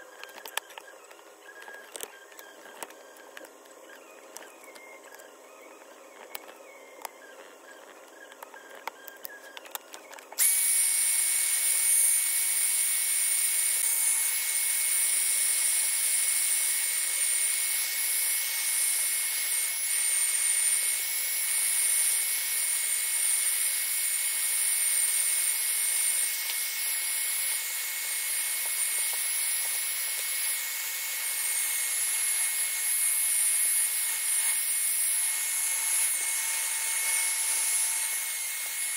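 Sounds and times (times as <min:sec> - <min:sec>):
hair dryer whining: 0:10.4 - 0:38.9.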